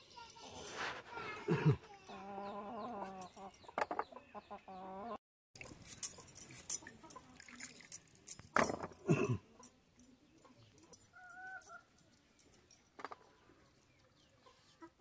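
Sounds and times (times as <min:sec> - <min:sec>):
chicken clucking: 0:02.0 - 0:05.2, 0:14.2 - 0:15.0.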